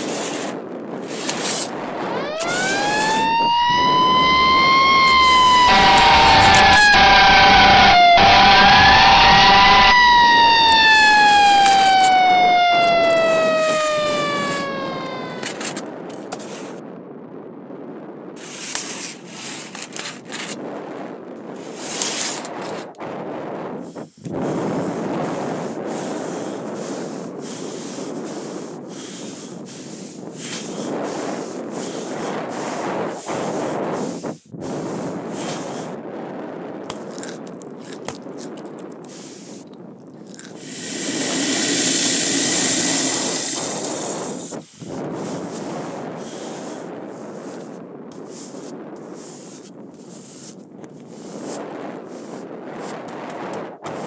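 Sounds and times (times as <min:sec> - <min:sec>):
snow shovels scraping pavement: 0:00.0 - 0:01.7, 0:18.4 - 0:20.6, 0:21.6 - 0:23.0, 0:25.5 - 0:34.2
swishing snow rub: 0:00.0 - 0:01.7, 0:23.8 - 0:35.9, 0:40.6 - 0:53.1
snow crunches and crackles: 0:00.0 - 0:03.2, 0:18.3 - 0:54.0
fire truck siren: 0:01.3 - 0:16.6, 0:40.6 - 0:44.4.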